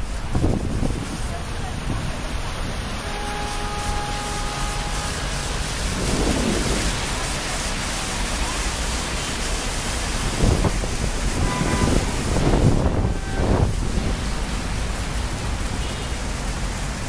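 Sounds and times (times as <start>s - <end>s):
city traffic rumble: 0.0s - 17.0s
fountain water splashing: 0.0s - 17.0s.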